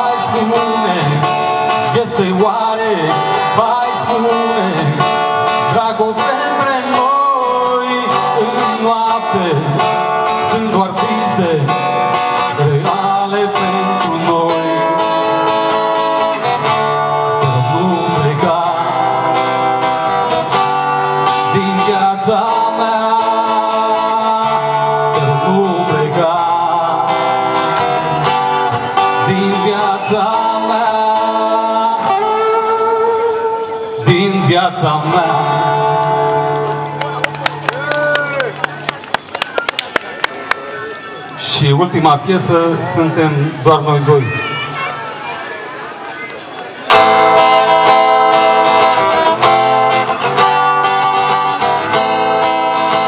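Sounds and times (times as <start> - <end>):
man singing pop song: 0.0 - 15.7, 17.2 - 20.2, 21.2 - 36.5
strummed acoustic guitar: 0.0 - 37.0, 46.8 - 53.0.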